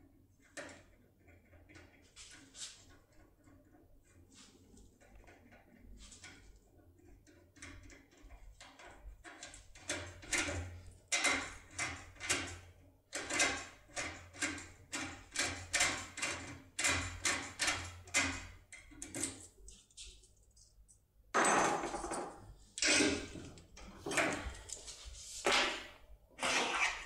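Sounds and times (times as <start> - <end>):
lock pick scraping metal: 26.4 - 27.0.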